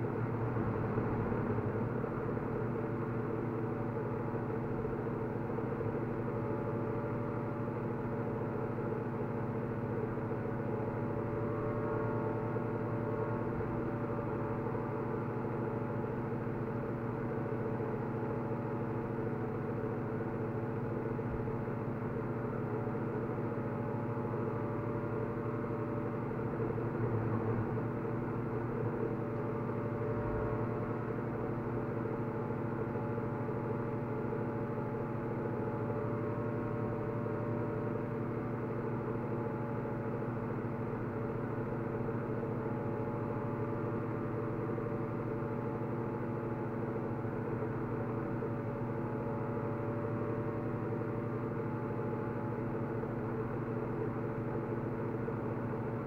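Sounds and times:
steady mechanical drone: 25.0s - 38.9s.

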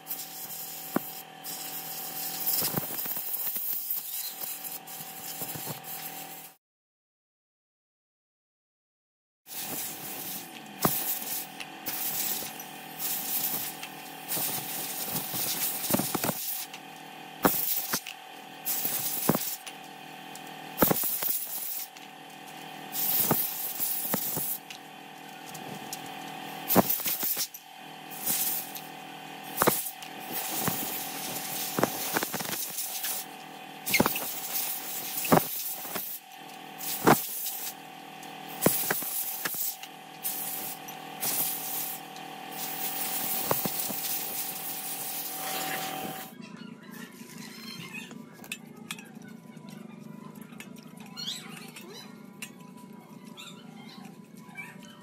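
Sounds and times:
screwdriver scraping grime off metal: 9.5s - 16.7s, 17.4s - 19.7s, 20.4s - 27.6s, 29.5s - 33.2s, 33.9s - 37.8s, 38.5s - 46.3s.

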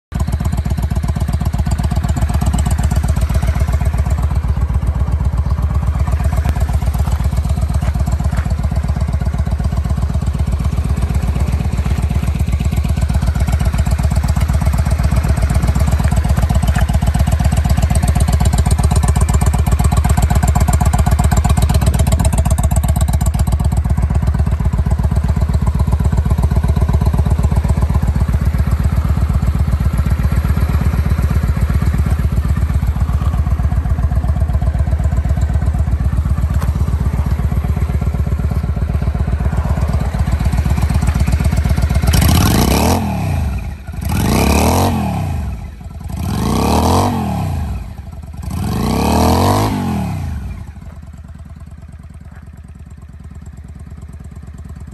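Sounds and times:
motorcycle engine idling: 0.1s - 54.9s.

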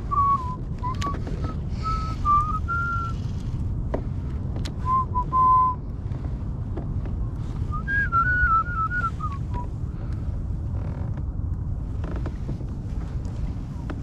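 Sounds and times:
low rumble: 0.0s - 14.0s
person whistling a tune: 0.1s - 3.2s, 4.8s - 5.8s, 7.7s - 9.7s.

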